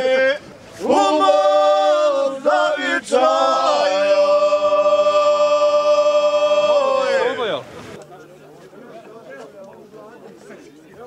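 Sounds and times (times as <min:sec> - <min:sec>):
men singing: 0:00.0 - 0:07.5.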